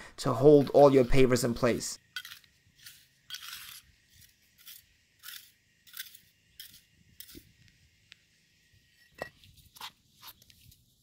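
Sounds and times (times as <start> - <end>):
hands scraping sand: 2.2 - 7.4.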